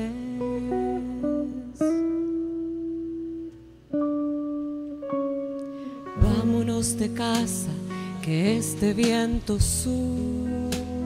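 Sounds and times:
electric guitar: 0.0 - 11.0
piano: 0.0 - 11.0
double bass: 6.0 - 11.0.

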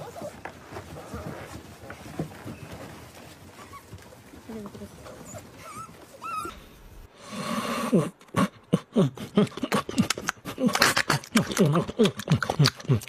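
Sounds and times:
puppies whining: 0.0 - 7.1.

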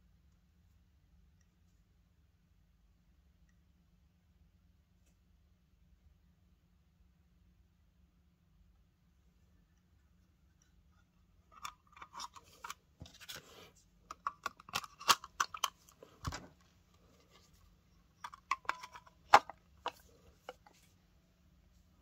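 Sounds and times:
small parts clicking and tapping: 14.1 - 16.7, 18.0 - 20.7.

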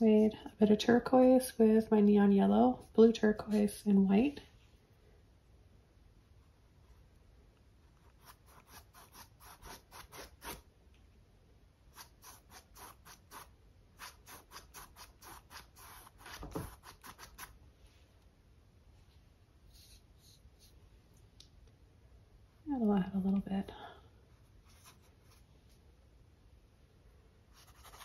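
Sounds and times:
paintbrush scratching on canvas: 19.7 - 20.8.

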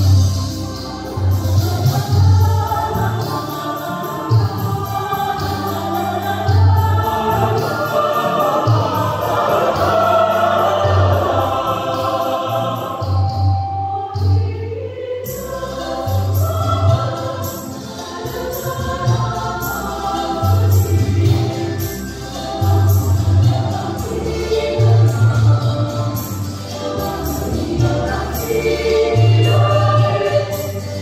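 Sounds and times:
mixed choir singing: 0.0 - 31.0
accompaniment with low beat: 4.2 - 14.3.

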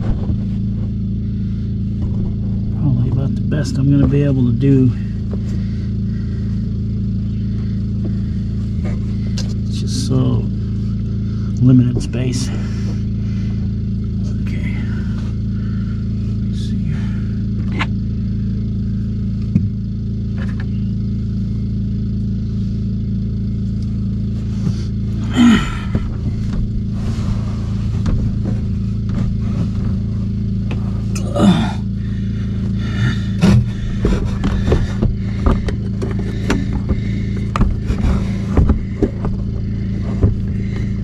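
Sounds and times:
steady low hum: 0.0 - 41.0
plastic drain pipe scraping creaks: 32.7 - 41.0
light clicks and knocks: 33.4 - 40.9.

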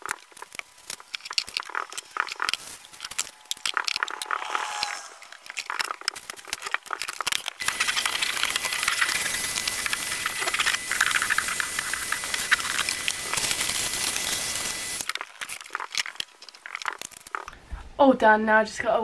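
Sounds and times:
vacuum cleaner whining: 7.6 - 15.8.

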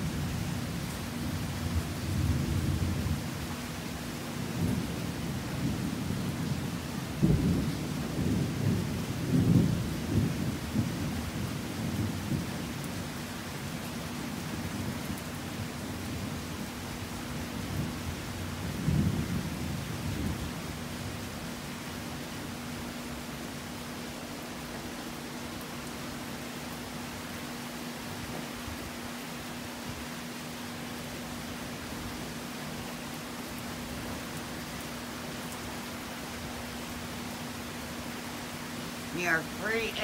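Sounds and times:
heavy rain: 0.0 - 40.0
thunder crack and rumble: 4.6 - 12.6, 18.6 - 21.1.

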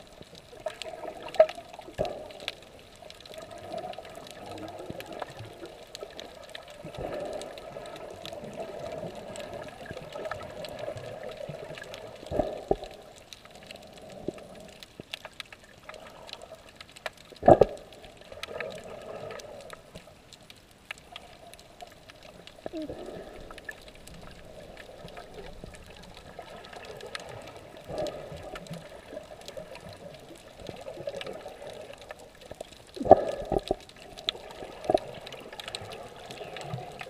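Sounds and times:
muffled underwater water noise: 0.0 - 37.0.

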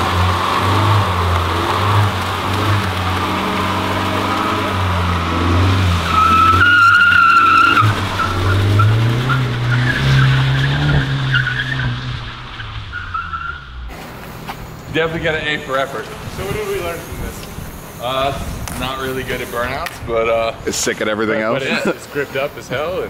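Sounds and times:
car engine at high revs: 0.0 - 19.3
tyre squeal: 0.5 - 13.9.

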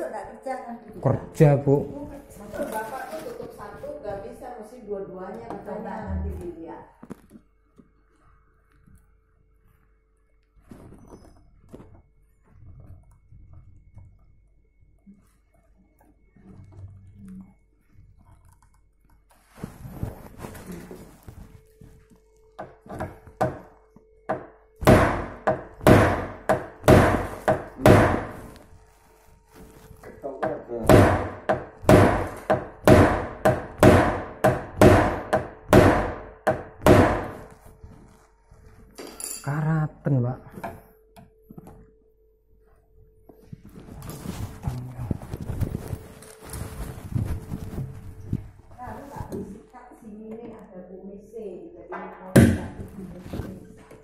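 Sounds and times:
knocking on kitchen cabinet: 24.3 - 28.3, 30.9 - 37.3.

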